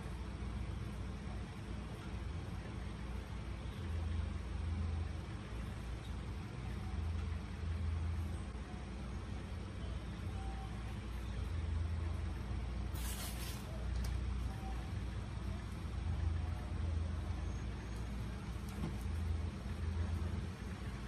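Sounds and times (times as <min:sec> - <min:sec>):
low background rumble: 0:00.0 - 0:21.0
short hiss: 0:12.9 - 0:13.7.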